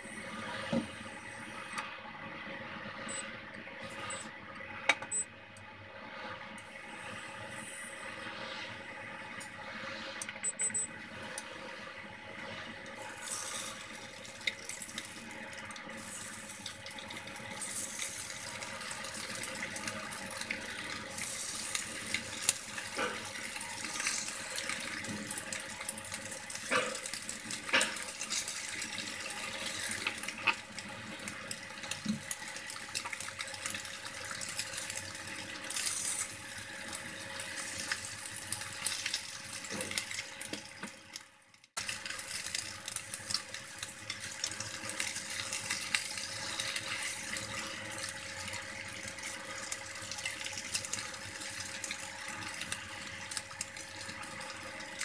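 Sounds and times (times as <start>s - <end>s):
chicken wings sizzling in oil: 6.6s - 55.0s
oil crackles and pops: 12.8s - 55.0s.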